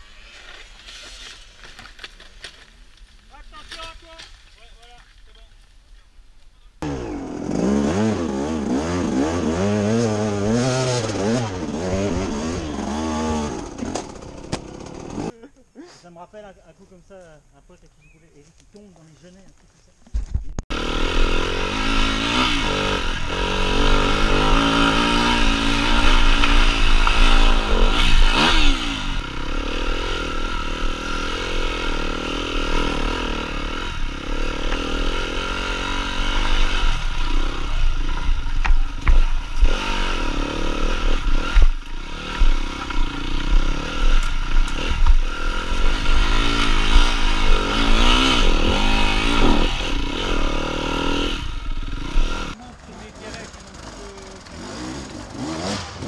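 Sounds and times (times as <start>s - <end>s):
dirt bike engine revving: 6.8s - 15.3s, 20.7s - 56.0s.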